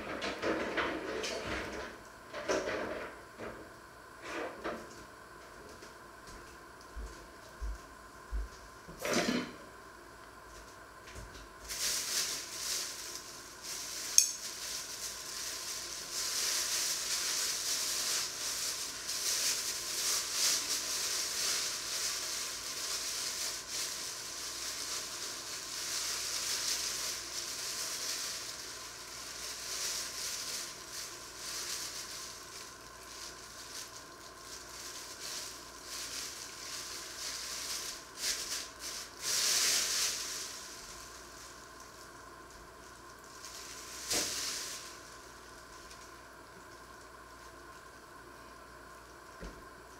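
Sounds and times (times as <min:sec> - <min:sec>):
plastic bag crinkling: 0:11.6 - 0:47.8.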